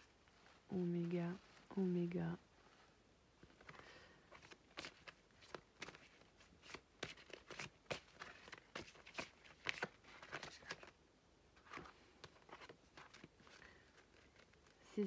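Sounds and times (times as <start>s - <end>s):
playing cards slapping: 4.4s - 10.9s.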